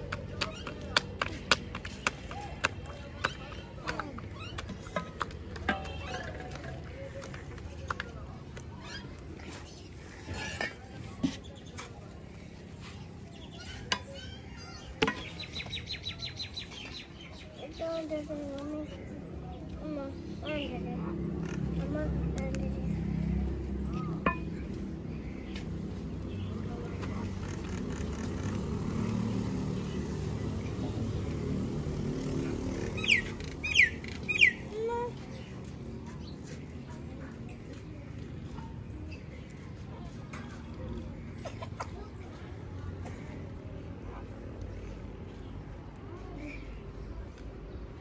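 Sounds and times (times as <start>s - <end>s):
bird chirping: 32.8s - 34.8s.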